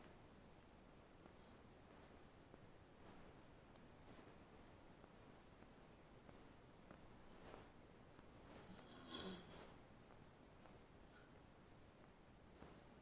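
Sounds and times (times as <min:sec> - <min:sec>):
faint high squeaks: 0:00.0 - 0:02.2, 0:02.9 - 0:07.7, 0:08.3 - 0:09.8, 0:10.5 - 0:10.8, 0:11.4 - 0:11.8, 0:12.5 - 0:12.9.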